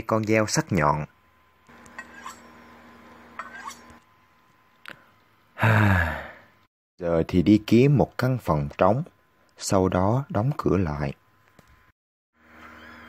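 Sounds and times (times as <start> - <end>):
faint background hum: 0.0 - 13.0
man sighing: 5.6 - 6.5.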